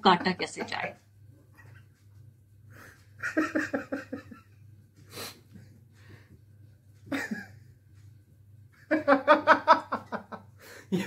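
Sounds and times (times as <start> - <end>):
man laughing: 3.2 - 4.4, 7.1 - 7.5.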